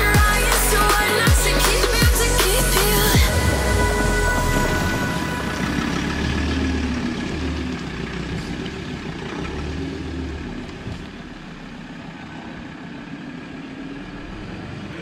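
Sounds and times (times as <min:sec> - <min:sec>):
pulsing bass music: 0:00.0 - 0:07.8
vehicle engine and road noise: 0:00.0 - 0:15.0.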